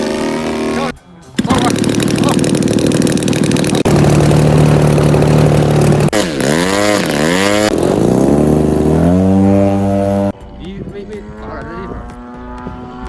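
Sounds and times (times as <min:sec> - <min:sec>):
model airplane engine revving: 0:00.0 - 0:10.4.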